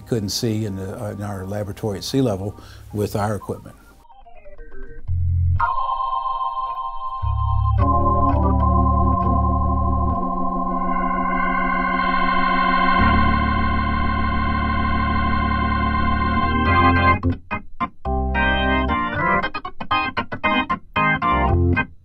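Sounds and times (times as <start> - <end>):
organ chords through rotating speaker: 0.0 - 22.0.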